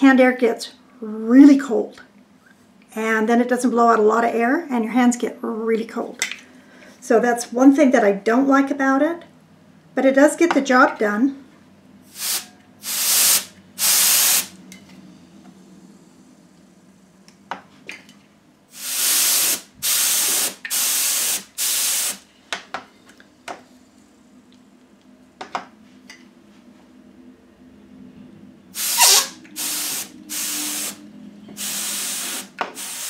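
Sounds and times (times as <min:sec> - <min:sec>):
compressed air hissing blasts: 0:12.1 - 0:14.6, 0:18.7 - 0:22.2, 0:28.8 - 0:31.0, 0:31.6 - 0:33.0.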